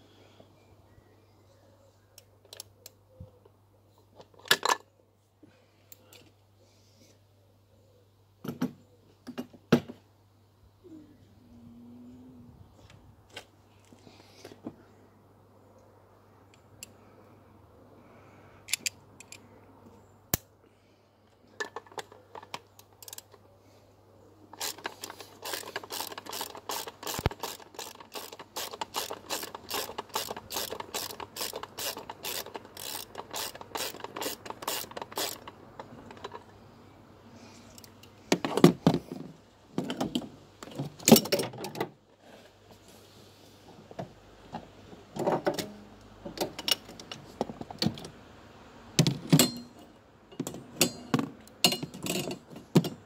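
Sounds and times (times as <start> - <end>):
socket ratchet clicking: 24.6 - 36.3
metallic clunks of tools: 49.0 - 53.0.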